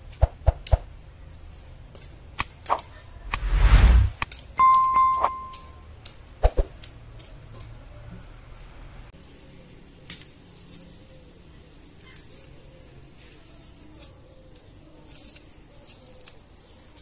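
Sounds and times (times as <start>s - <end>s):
knife peeling onion skin: 13.8s - 17.0s.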